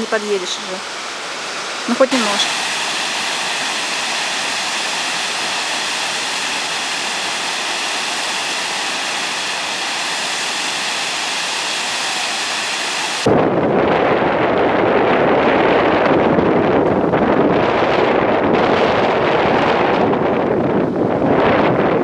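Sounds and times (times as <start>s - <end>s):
waterfall rushing: 0.0s - 13.3s
wind buffeting microphone: 13.2s - 22.0s.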